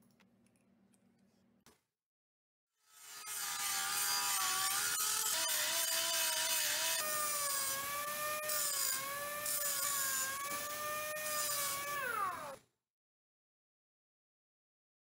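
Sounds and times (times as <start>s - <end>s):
grinder whining on steel: 2.8s - 12.6s.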